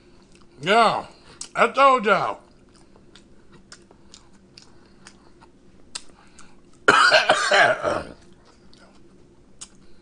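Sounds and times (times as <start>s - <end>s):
faint chewing clicks: 0.0s - 0.6s, 2.4s - 6.9s, 8.2s - 10.0s
man coughing: 6.9s - 8.2s.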